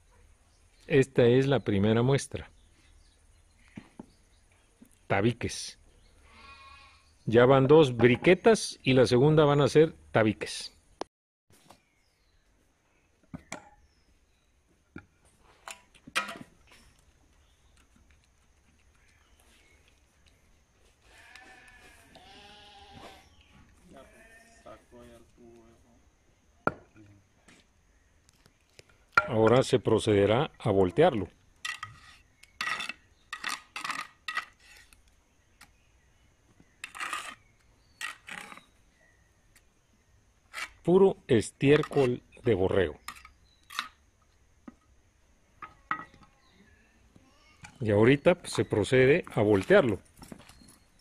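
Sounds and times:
metal trowel scraping metal mold: 36.8s - 38.7s.

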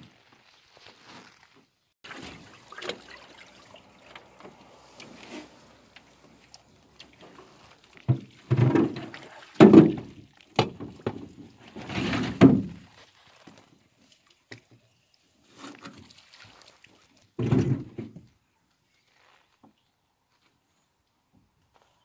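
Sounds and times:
thumps and knocks on a boat: 8.0s - 11.6s, 12.2s - 12.9s, 17.4s - 18.3s.

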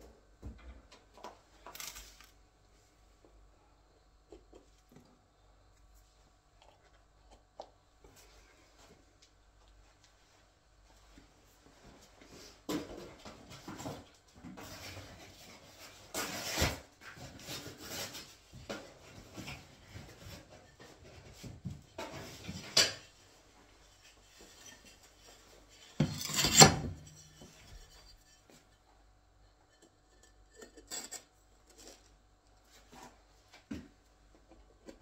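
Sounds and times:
trowel scraping tile adhesive: 25.9s - 28.2s.

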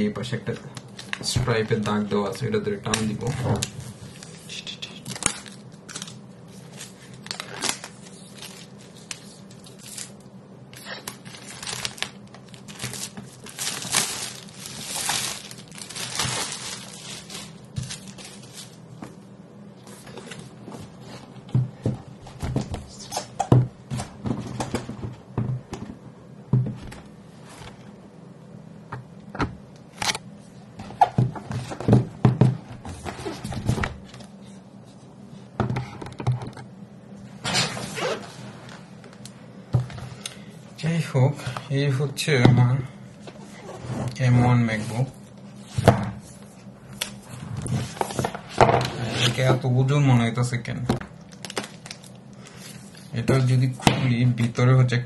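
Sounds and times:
plastic film tearing and crinkling: 3.6s - 10.2s, 10.8s - 18.8s, 51.3s - 52.2s.

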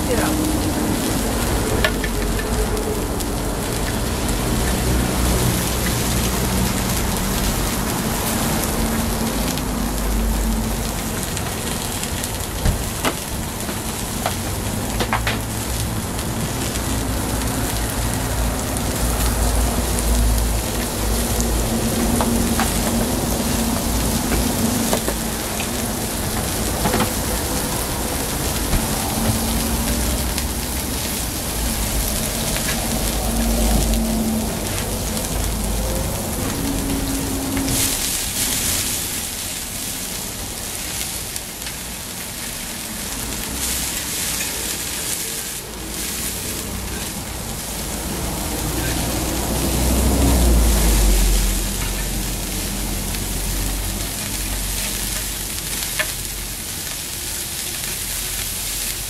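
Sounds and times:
food sizzling on a griddle: 0.0s - 59.0s.

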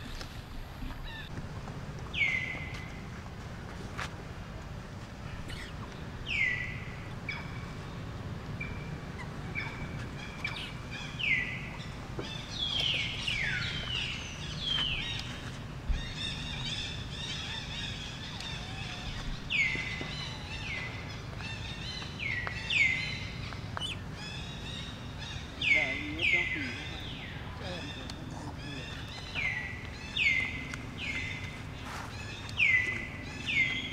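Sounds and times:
low background rumble: 0.0s - 33.9s
high-pitched animal calls: 16.3s - 20.5s.

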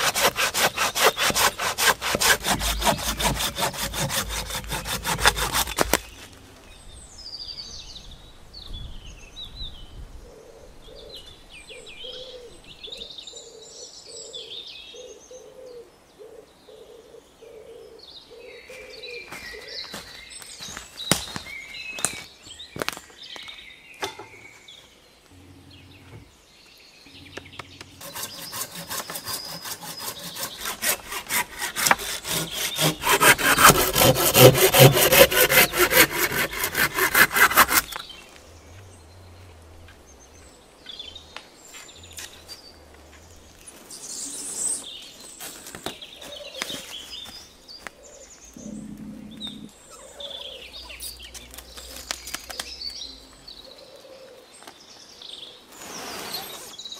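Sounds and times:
hand saw cutting wood: 0.0s - 6.3s, 27.2s - 38.1s, 55.8s - 56.8s.

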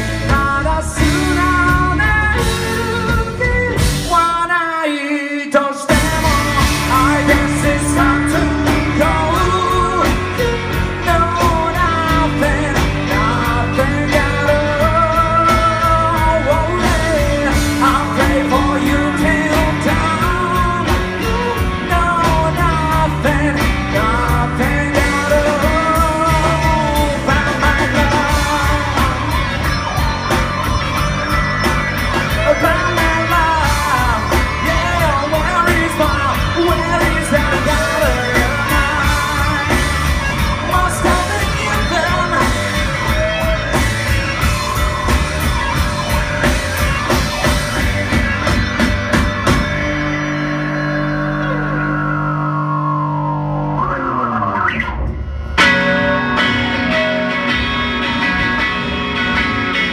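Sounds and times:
electric bass: 0.0s - 4.6s, 5.9s - 59.9s
drum kit: 0.0s - 4.7s, 5.8s - 52.2s, 53.8s - 59.9s
man singing: 0.0s - 30.4s, 32.0s - 48.0s
electric guitars: 0.0s - 59.9s.

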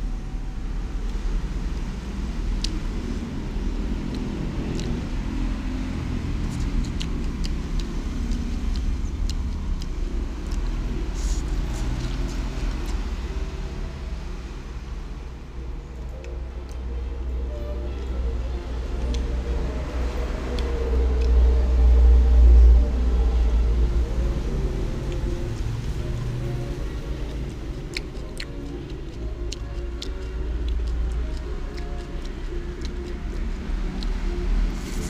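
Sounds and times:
road traffic rumble: 0.0s - 35.0s.

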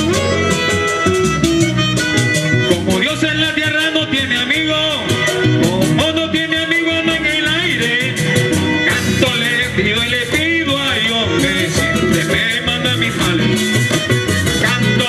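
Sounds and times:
accordion playing: 0.0s - 15.0s
drums and scraper rhythm: 0.0s - 15.0s
man singing: 2.6s - 15.0s.

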